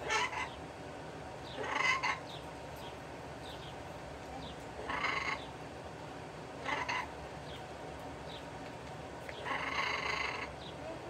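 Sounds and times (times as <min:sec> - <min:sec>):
parrot squawking: 0:00.0 - 0:00.6, 0:01.5 - 0:02.4, 0:04.8 - 0:05.5, 0:06.6 - 0:07.2, 0:09.4 - 0:10.6.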